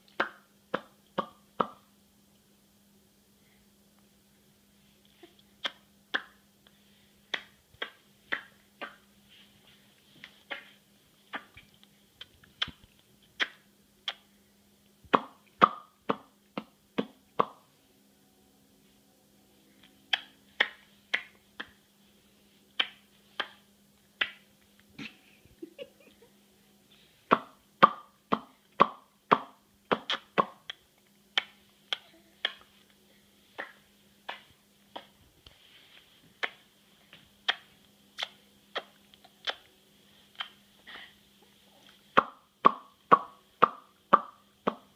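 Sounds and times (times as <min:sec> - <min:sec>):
baby making popping clicks: 0:05.6 - 0:06.4, 0:13.4 - 0:14.3, 0:27.3 - 0:30.8, 0:31.4 - 0:32.7, 0:37.5 - 0:39.7.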